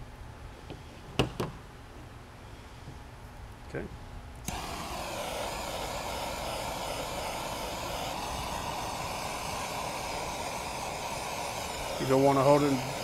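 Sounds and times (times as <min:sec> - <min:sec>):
gas torch roaring: 0:04.4 - 0:13.0.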